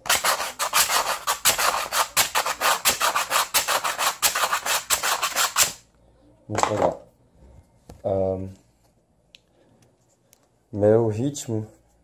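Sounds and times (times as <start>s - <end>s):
sandpaper scraping: 0.0s - 5.8s.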